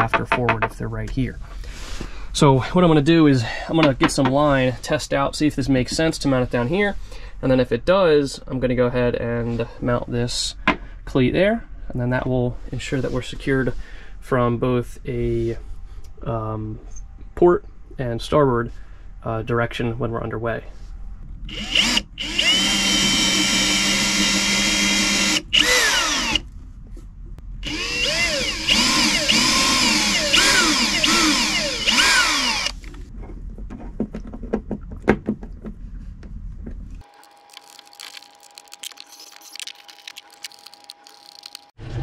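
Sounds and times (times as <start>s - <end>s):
cordless drill whining into wood: 21.5s - 26.4s, 27.6s - 32.8s.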